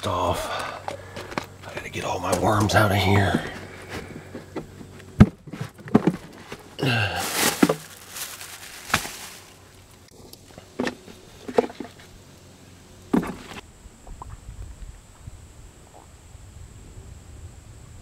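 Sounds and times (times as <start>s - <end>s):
rustling and handling noise: 0.8s - 12.2s.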